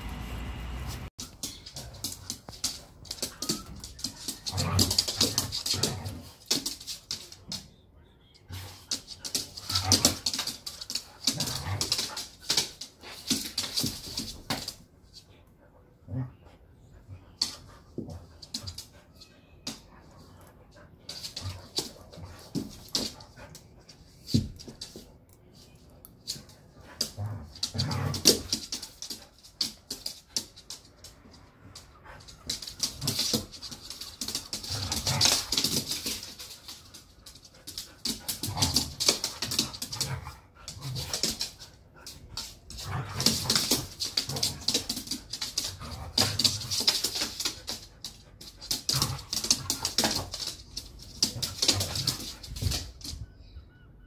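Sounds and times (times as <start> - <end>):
claws scrabbling on floor: 32.3 - 53.1.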